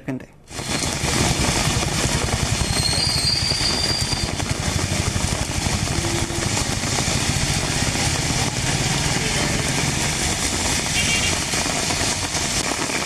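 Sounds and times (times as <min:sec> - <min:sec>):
heavy rain hissing: 0:00.5 - 0:13.0
traffic engines running: 0:04.2 - 0:12.6.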